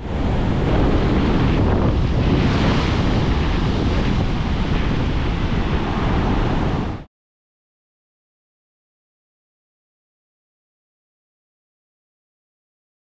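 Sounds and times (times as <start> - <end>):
ocean surf breaking: 0.0 - 7.1
wind noise on microphone: 0.0 - 7.1.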